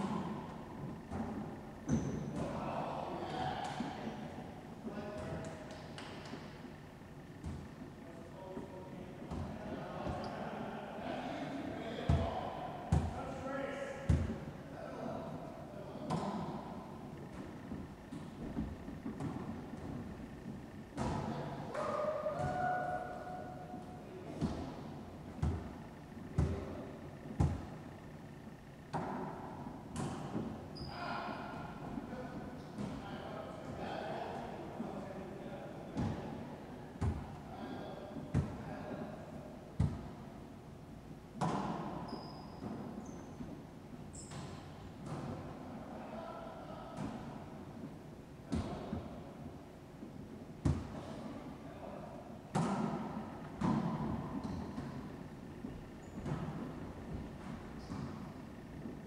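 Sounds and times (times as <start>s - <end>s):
volleyball thudding in echoing court: 0.0s - 10.6s, 11.2s - 14.6s, 15.3s - 35.0s, 35.8s - 45.9s, 46.6s - 59.0s
ball thuds with echo: 11.9s - 13.2s, 14.0s - 14.5s, 16.0s - 23.2s, 24.3s - 27.8s, 37.0s - 37.4s, 38.2s - 38.6s, 39.7s - 40.2s, 50.6s - 51.1s, 52.5s - 58.9s.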